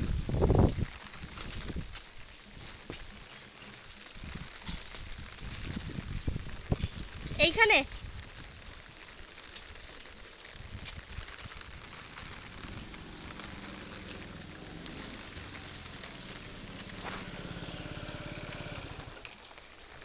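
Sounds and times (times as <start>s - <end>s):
rain falling on wet road: 0.0s - 20.0s
motor scooter engine running: 12.5s - 19.2s.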